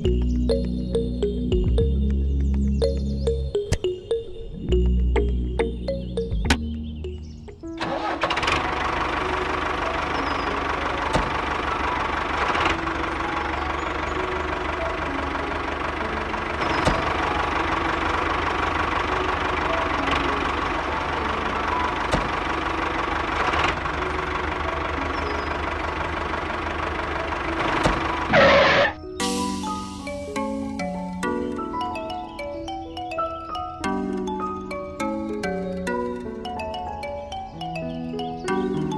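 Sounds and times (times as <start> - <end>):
toy tractor engine running: 7.8 - 28.8.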